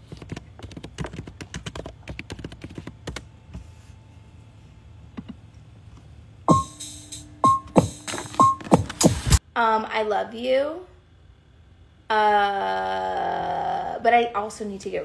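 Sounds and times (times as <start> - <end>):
song with bass notes: 6.5 - 9.4
fingernails tapping phone screen: 7.4 - 9.2.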